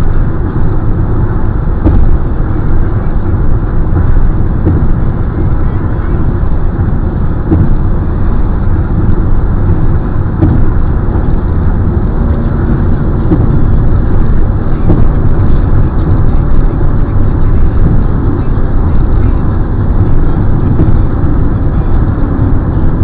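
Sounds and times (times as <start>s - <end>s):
car driving at highway speed: 0.0s - 23.0s
tyre and wind noise: 0.0s - 23.0s.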